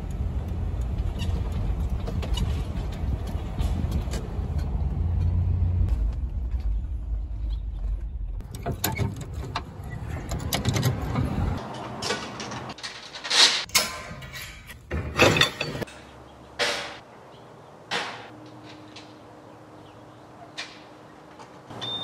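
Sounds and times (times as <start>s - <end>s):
vehicle engine and road rumble: 0.0s - 22.0s
metal clanks: 8.4s - 17.0s.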